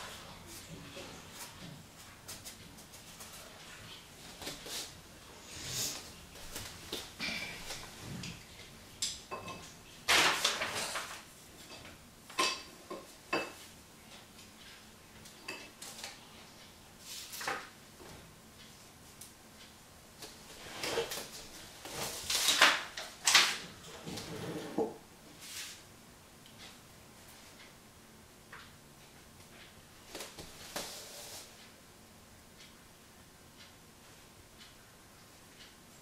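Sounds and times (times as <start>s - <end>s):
brush strokes on canvas: 25.4s - 25.8s, 30.5s - 31.6s.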